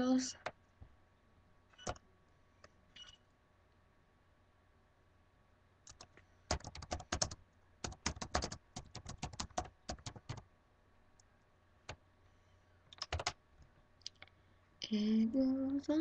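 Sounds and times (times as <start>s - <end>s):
computer keyboard key clicks: 13.0s - 13.4s.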